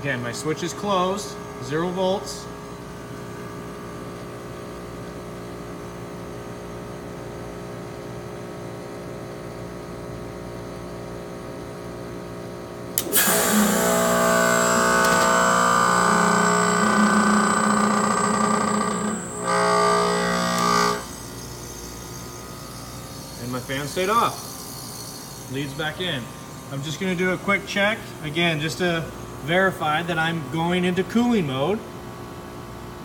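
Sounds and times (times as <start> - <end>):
compressor humming: 0.0 - 4.6, 12.9 - 32.3.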